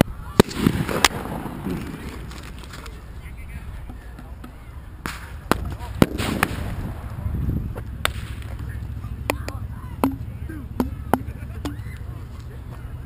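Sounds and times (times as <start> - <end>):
fireworks bangs and pops: 0.4 - 3.0, 5.0 - 8.8.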